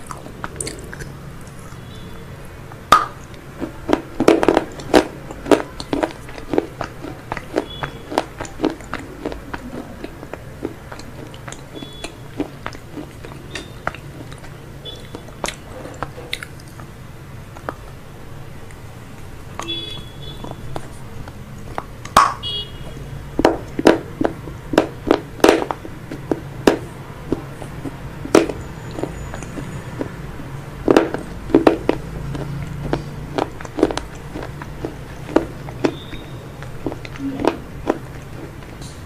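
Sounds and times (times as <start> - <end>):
person chewing crunchy food: 0.0 - 2.1, 2.7 - 18.0, 18.6 - 39.0.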